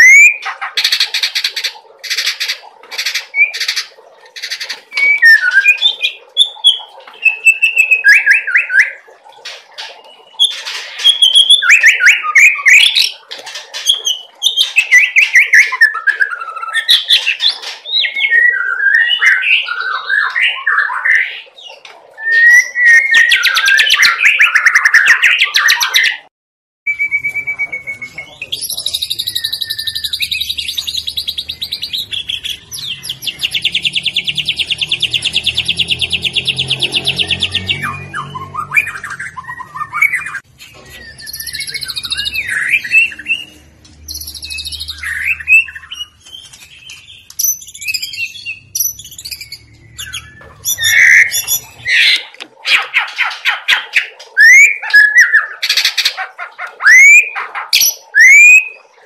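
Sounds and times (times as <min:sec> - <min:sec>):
bird singing: 0:26.9 - 0:56.2.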